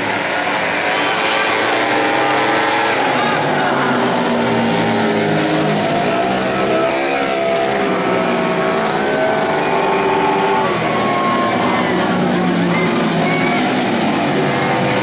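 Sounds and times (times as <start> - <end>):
racing scooter engines revving: 0.0 - 15.0.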